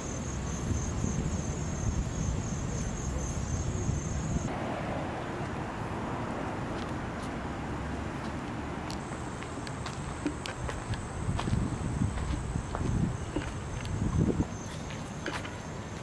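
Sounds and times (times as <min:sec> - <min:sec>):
high insect drone: 0:00.0 - 0:04.5, 0:08.9 - 0:16.0
low wind rumble on microphone: 0:00.0 - 0:07.6, 0:08.4 - 0:16.0.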